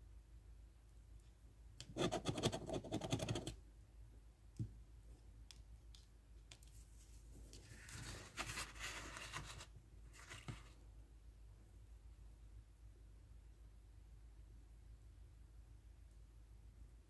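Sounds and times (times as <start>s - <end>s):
paper rustling and sliding: 6.9s - 10.8s.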